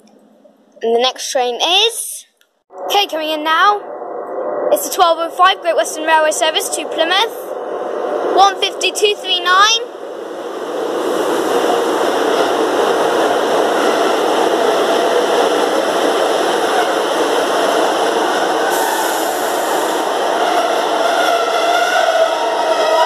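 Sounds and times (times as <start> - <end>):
train rumbling past: 4.9 - 23.0.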